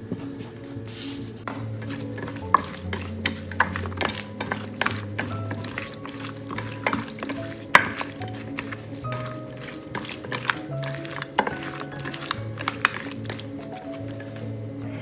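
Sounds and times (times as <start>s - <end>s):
background music: 0.0s - 15.0s
meat slapping in metal bowl: 1.8s - 14.5s.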